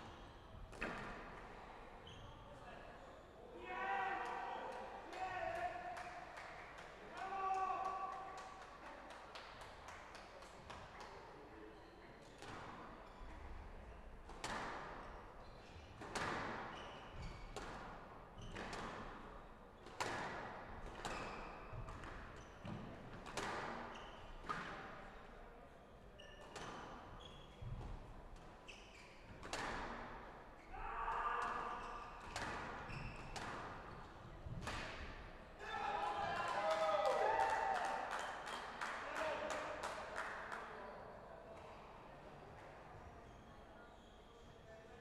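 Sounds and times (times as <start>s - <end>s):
squash ball hitting racket and walls: 0.7s - 1.4s, 14.3s - 15.1s, 16.0s - 19.2s, 19.8s - 25.0s, 26.3s - 28.5s, 29.3s - 30.4s, 31.4s - 35.3s.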